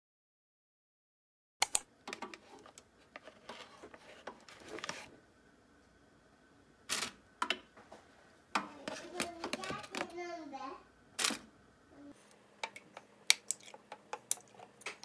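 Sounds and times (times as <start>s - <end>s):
metal utensils on plastic containers: 8.6s - 10.2s, 12.6s - 15.0s.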